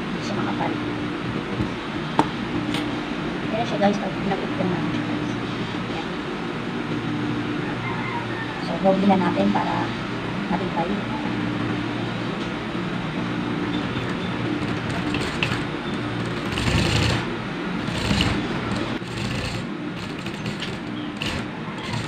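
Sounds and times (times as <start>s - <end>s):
sewing machine running: 14.0s - 22.0s.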